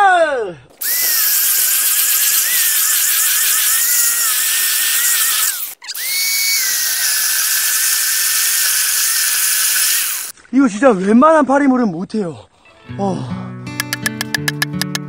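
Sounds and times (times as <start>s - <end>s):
electric chainsaw cutting log: 0.8s - 10.3s.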